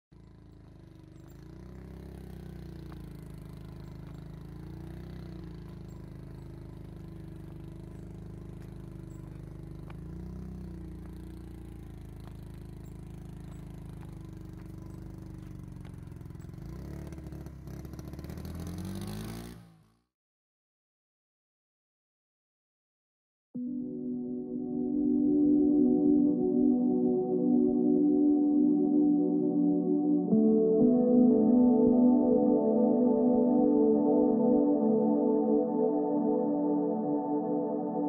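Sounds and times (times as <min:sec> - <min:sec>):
small motorcycle engine running: 0:00.1 - 0:20.1.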